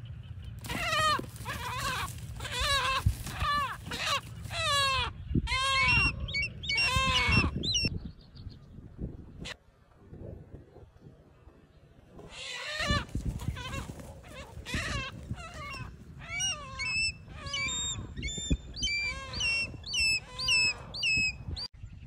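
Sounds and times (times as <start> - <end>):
chicken squawking in distress: 0.6 - 6.2, 12.3 - 17.4.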